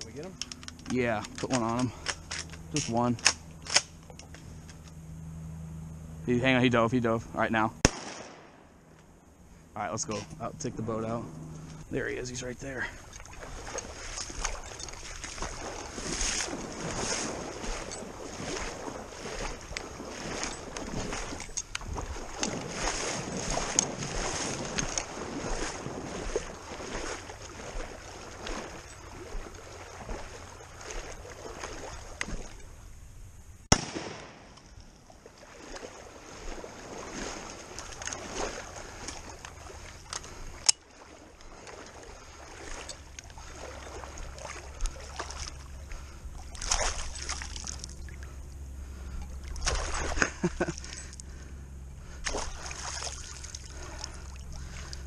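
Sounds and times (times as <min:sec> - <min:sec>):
low motor hum: 0:00.0 - 0:55.0
water sloshing around boat: 0:07.6 - 0:33.1, 0:33.7 - 0:55.0
shotgun shots: 0:07.8 - 0:08.8, 0:33.7 - 0:34.6.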